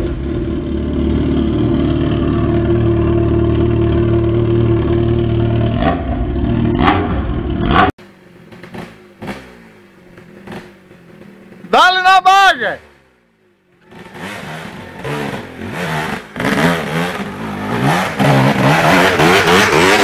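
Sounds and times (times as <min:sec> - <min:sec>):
dirt bike engine: 0:00.0 - 0:20.0.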